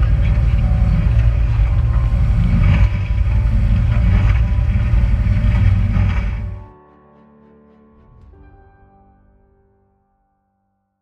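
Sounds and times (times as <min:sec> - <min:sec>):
boat engine rumble: 0:00.0 - 0:06.7.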